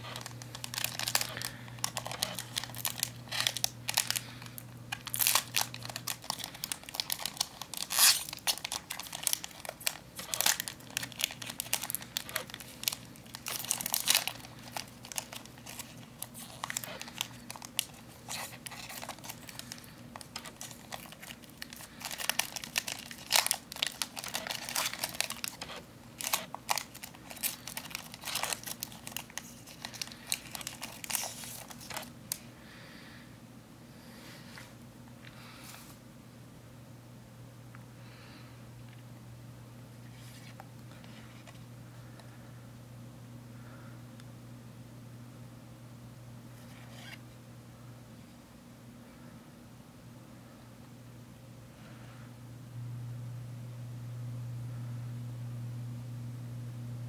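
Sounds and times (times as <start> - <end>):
foil wrapper crinkling and tearing: 0.0 - 32.4.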